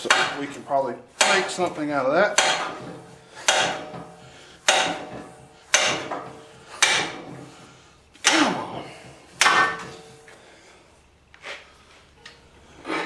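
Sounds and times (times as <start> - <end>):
steel-on-steel knocks ringing: 0.0 - 0.6, 2.4 - 7.4, 9.4 - 10.2.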